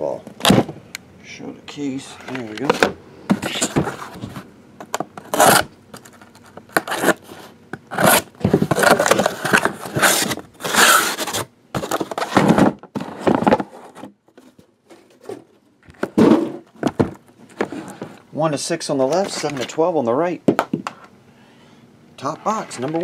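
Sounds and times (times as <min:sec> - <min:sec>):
cardboard scraping and rubbing: 0:03.3 - 0:04.5, 0:05.2 - 0:15.5.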